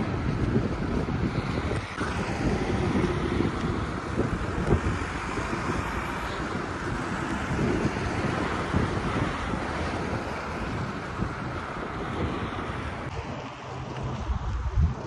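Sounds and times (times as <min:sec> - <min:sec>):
street traffic: 0:00.0 - 0:15.0
wind buffeting microphone: 0:00.0 - 0:15.0.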